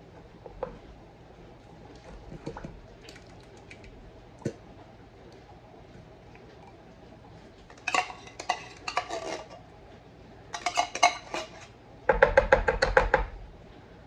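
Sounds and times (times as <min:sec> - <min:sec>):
metal spoon scraping tin can: 0:07.8 - 0:09.6, 0:10.6 - 0:11.7.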